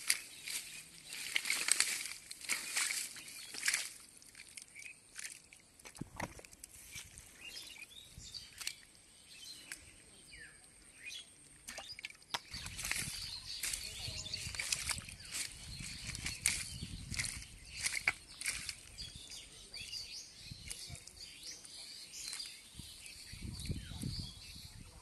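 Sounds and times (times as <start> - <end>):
hands squelching in wet mud: 0.0 - 10.0, 10.8 - 19.5.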